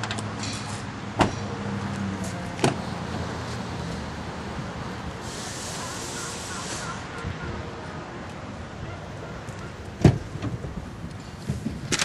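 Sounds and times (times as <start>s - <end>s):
car door slamming: 1.2s - 1.4s, 10.0s - 10.6s.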